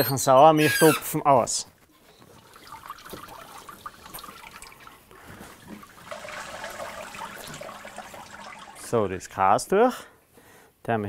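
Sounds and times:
liquid trickling and dripping: 0:01.9 - 0:09.3.

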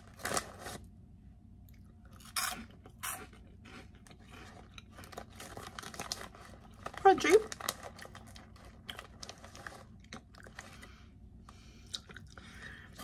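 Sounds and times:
crisp crunching when chewed: 0:00.0 - 0:00.9, 0:01.7 - 0:13.0.

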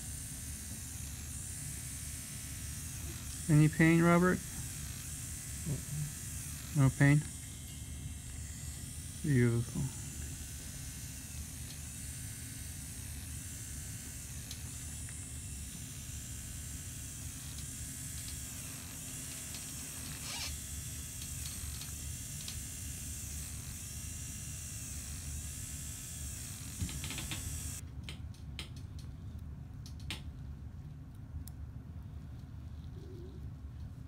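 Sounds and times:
motorized handpiece whining: 0:00.0 - 0:27.8
steady low hum: 0:00.0 - 0:34.0.

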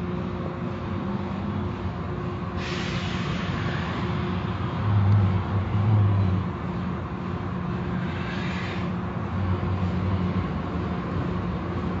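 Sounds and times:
water spraying hiss: 0:02.6 - 0:04.0
low motor hum: 0:03.4 - 0:12.0.

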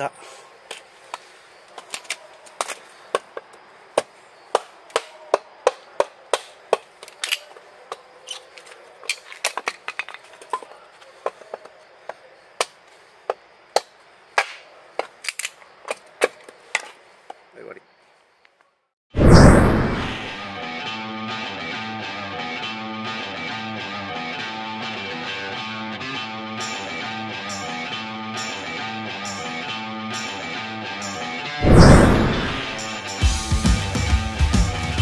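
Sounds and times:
knife chopping firewood: 0:01.8 - 0:09.8.

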